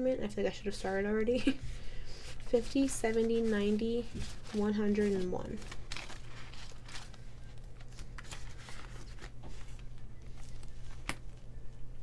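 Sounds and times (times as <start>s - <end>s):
low steady hum: 0.0s - 12.0s
banknotes rustling: 2.1s - 11.7s
plastic sleeve crinkling: 2.3s - 11.5s.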